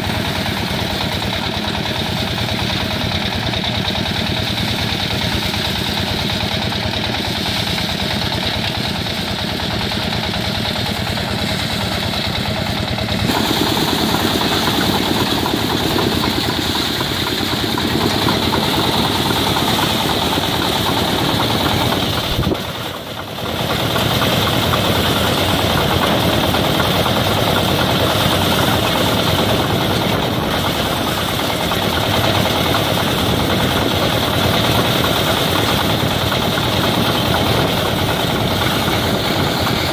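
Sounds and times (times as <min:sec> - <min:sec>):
engine-driven thresher running: 0:00.0 - 0:39.9.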